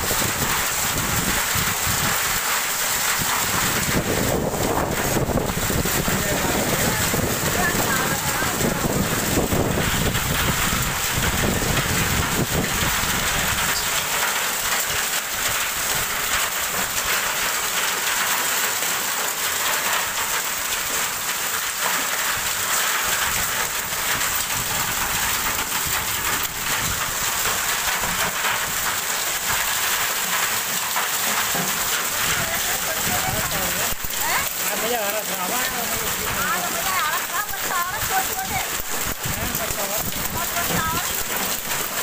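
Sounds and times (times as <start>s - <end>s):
hail and rain pelting: 0.0s - 42.0s
hailstones ticking on metal: 0.0s - 42.0s.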